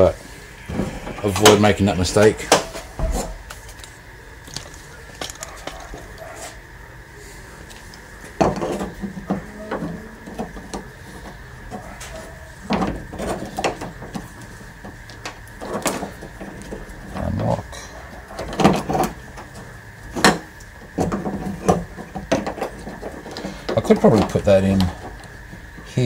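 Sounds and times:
clicks and rattles of door parts: 0:07.7 - 0:17.5, 0:18.1 - 0:25.4.

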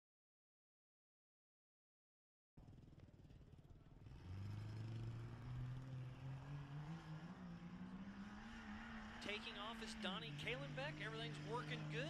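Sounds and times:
truck engine revving: 0:04.0 - 0:12.0.

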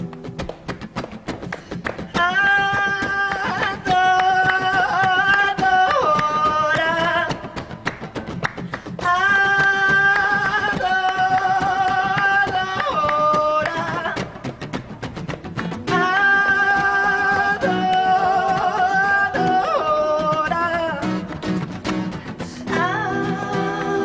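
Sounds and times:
acoustic guitar: 0:00.0 - 0:24.0
woman singing wordless notes: 0:02.2 - 0:07.6, 0:09.0 - 0:14.2, 0:15.9 - 0:21.2, 0:22.4 - 0:24.0.

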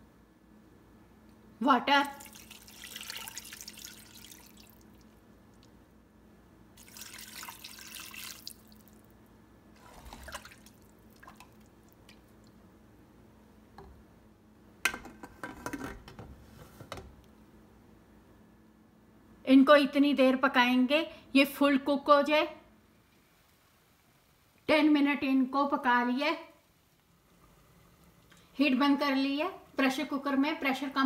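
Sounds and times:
water pouring into metal pot: 0:02.1 - 0:05.0, 0:06.8 - 0:09.0, 0:09.8 - 0:11.7.

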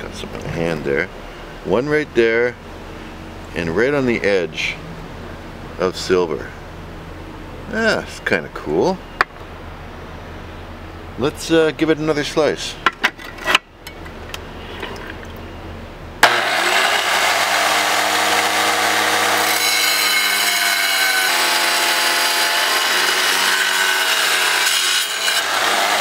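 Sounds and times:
wet tile saw cutting rock: 0:16.2 - 0:26.0.

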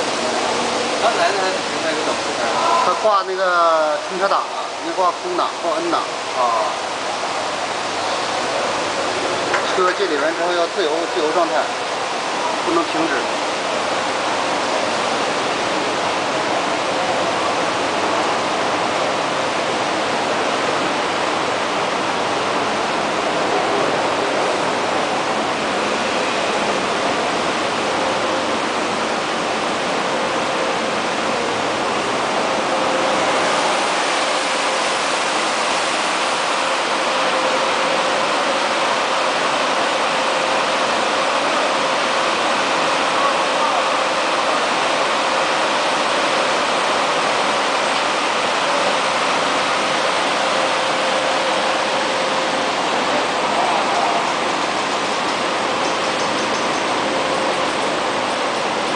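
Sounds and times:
water spray and spinning brushes: 0:06.0 - 0:58.9.

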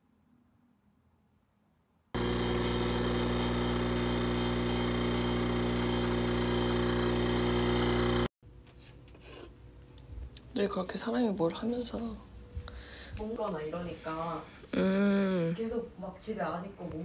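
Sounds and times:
machine hum: 0:02.2 - 0:08.3.

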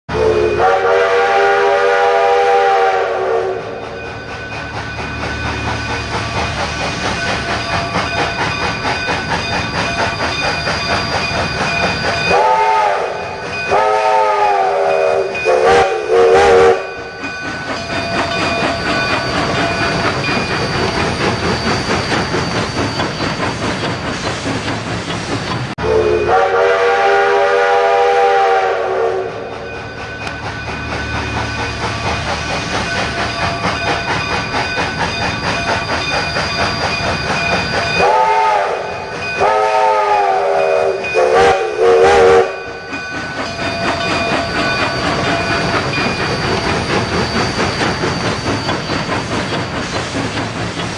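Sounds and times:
train whistle blowing: 0:00.1 - 0:04.0, 0:12.2 - 0:17.1, 0:25.8 - 0:29.7, 0:38.0 - 0:42.8
train rumbling and clacking: 0:00.1 - 0:50.9.

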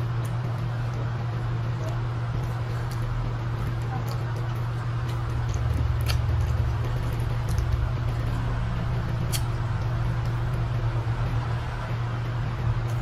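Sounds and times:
low hum: 0:00.0 - 0:13.0
person chewing: 0:05.0 - 0:10.6.

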